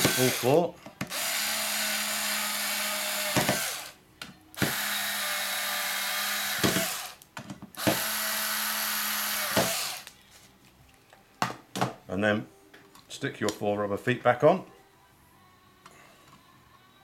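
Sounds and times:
electric screwdriver running: 0.0 - 4.0, 4.6 - 7.2, 7.8 - 10.1.

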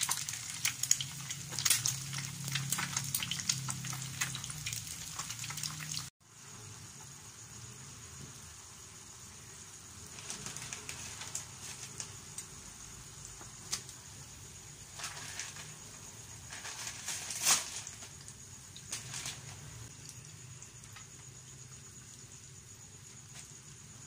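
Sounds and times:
water simmering: 0.0 - 6.5.

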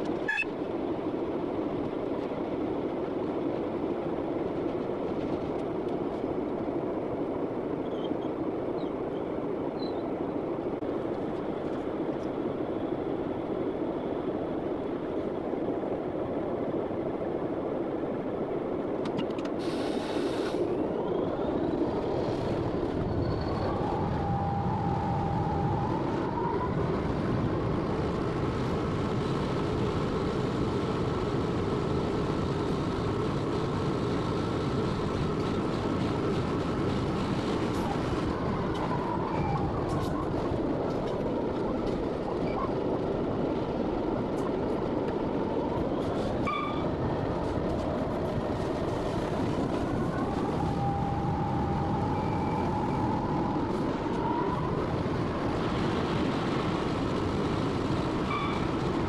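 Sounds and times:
diesel locomotive engine: 0.0 - 59.0
wheels rumbling on rails: 0.0 - 59.0
turbocharger whine: 19.6 - 42.7, 45.2 - 59.0.

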